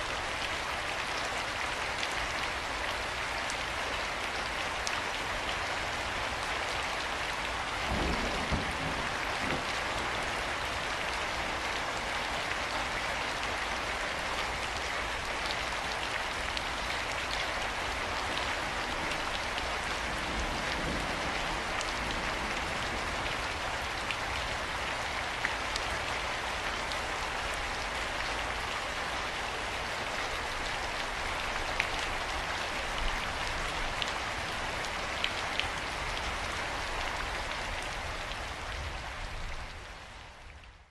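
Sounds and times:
steady rain hiss: 0.0 - 40.9
raindrop ticks: 7.9 - 9.8.

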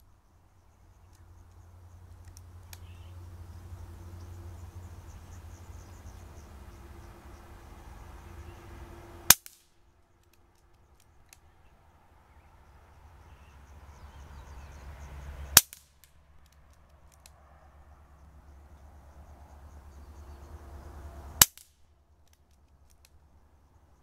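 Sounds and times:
faint clicks: 0.9 - 3.0, 10.2 - 11.5, 15.6 - 17.4, 21.4 - 23.3.

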